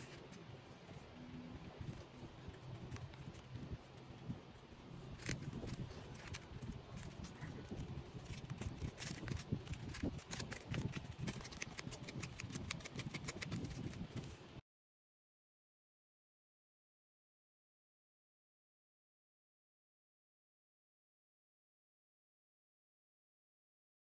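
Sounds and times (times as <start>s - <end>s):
plastic sleeved cards clicking: 5.1s - 14.3s.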